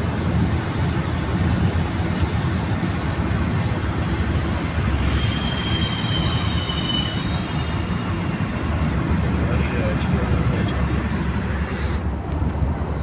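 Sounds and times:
road and tyre rumble in car: 0:00.0 - 0:13.0
thin high whine: 0:04.2 - 0:09.7.

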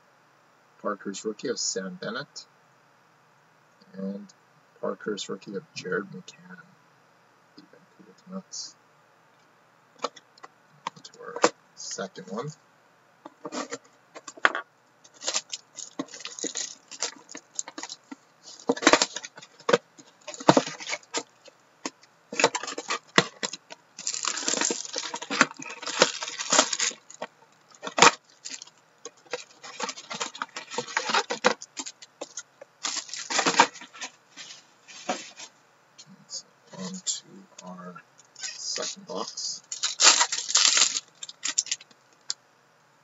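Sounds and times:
foil packs crinkling: 0:13.4 - 0:21.5, 0:22.3 - 0:35.5, 0:38.4 - 0:42.0.

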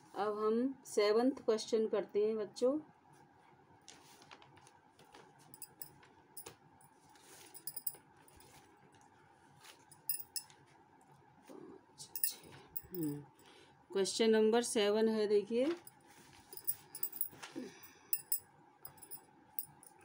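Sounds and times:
faint steady hum: 0:00.0 - 0:20.0
small objects clicking and rustling: 0:16.6 - 0:17.6.

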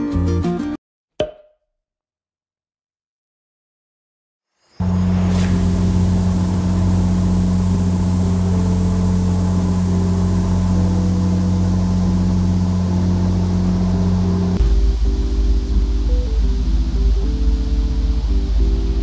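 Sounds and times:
rushing water: 0:04.8 - 0:11.6
boat engine droning: 0:04.8 - 0:19.0.

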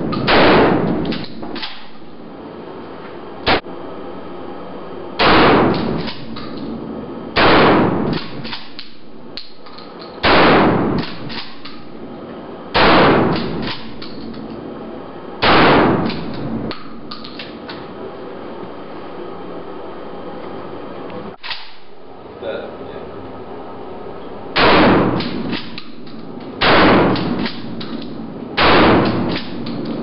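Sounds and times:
sharp crack: 0:00.1 - 0:01.9, 0:05.2 - 0:06.6, 0:07.4 - 0:09.6, 0:10.2 - 0:11.8, 0:12.8 - 0:14.2, 0:15.4 - 0:17.3, 0:24.6 - 0:26.0, 0:26.6 - 0:30.0
shotgun blasts echoing: 0:00.2 - 0:01.1, 0:05.2 - 0:06.3, 0:07.4 - 0:08.5, 0:10.2 - 0:11.9, 0:12.8 - 0:14.0, 0:15.4 - 0:16.4, 0:24.6 - 0:26.0, 0:26.6 - 0:27.8, 0:28.6 - 0:29.6.

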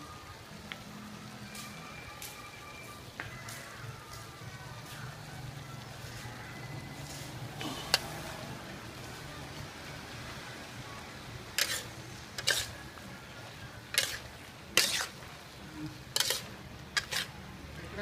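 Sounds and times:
food frying: 0:00.0 - 0:18.0
metal spatula scraping wok: 0:11.5 - 0:17.5.

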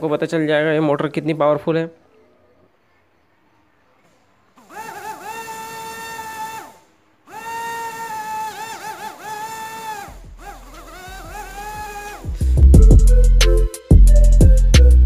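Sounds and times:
drone motor whining: 0:04.6 - 0:13.2.

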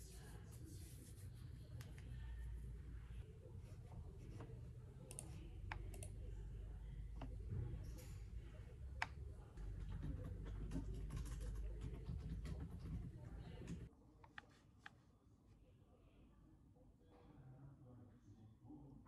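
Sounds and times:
low room hum: 0:00.0 - 0:19.0
computer mouse clicking: 0:05.0 - 0:06.2.

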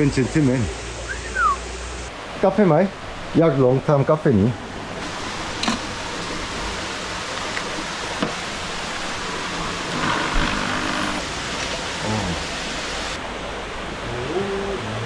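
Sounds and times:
flowing water: 0:00.0 - 0:15.0
short voice: 0:14.1 - 0:15.0.

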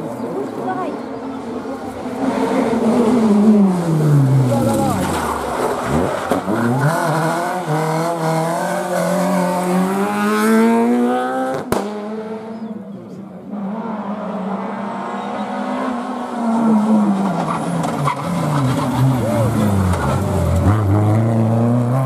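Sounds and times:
rally car approaching: 0:00.0 - 0:22.0
rally car engine accelerating: 0:01.5 - 0:22.0.

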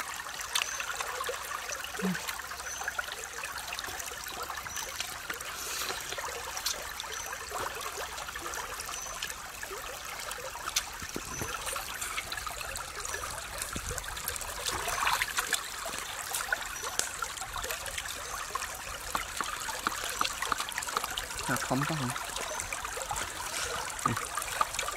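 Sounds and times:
stream trickling over rocks: 0:00.0 - 0:24.9.

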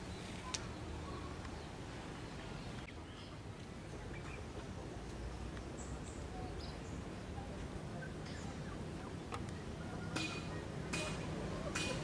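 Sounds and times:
faint bird chirps: 0:00.0 - 0:03.4.

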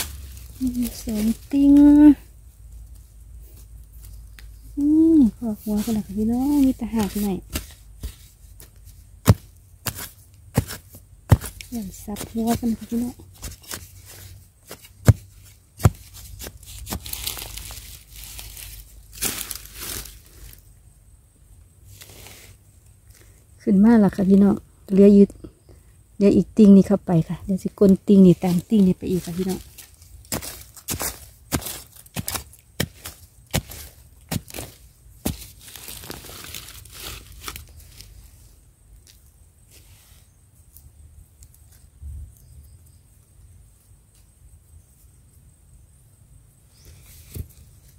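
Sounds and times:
blade striking soil: 0:00.0 - 0:02.0, 0:05.4 - 0:20.6, 0:27.8 - 0:38.2
earth scraping and crumbling: 0:00.0 - 0:20.6, 0:27.3 - 0:40.0.

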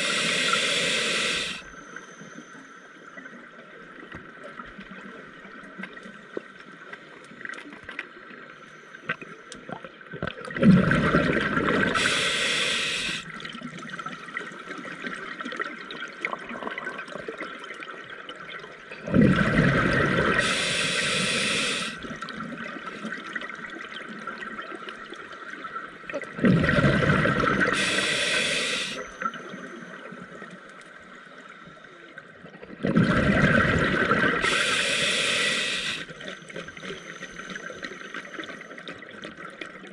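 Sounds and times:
diver exhaling through regulator: 0:00.0 - 0:01.7, 0:10.8 - 0:13.3, 0:19.2 - 0:22.1, 0:26.6 - 0:29.2, 0:32.9 - 0:36.1
exhaust bubbles gushing: 0:10.5 - 0:12.2, 0:19.0 - 0:22.0, 0:26.3 - 0:28.1, 0:32.8 - 0:35.8.

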